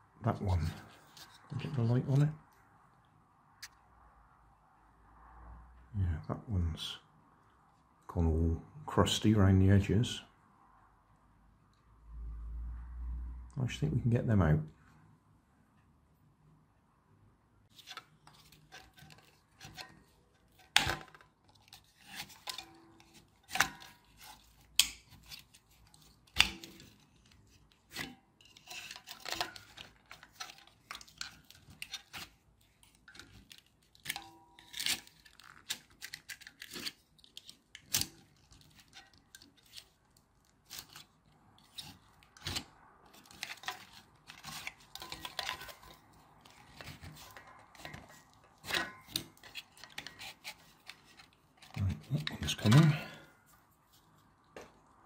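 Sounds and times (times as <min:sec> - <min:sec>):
screwdriver scraping plastic: 0:17.7 - 0:52.9
plastic clicks and cracks: 0:17.8 - 0:52.1.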